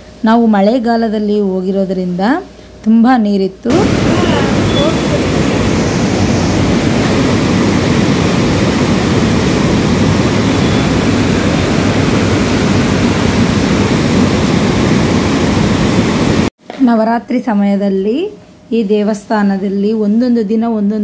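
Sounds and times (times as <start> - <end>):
river water roaring: 3.7 - 16.5.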